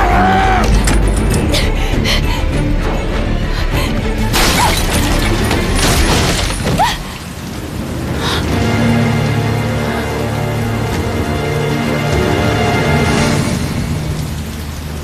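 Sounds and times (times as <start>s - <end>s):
dramatic film score: 0.0s - 15.0s
doors bursting open crash: 4.3s - 7.1s.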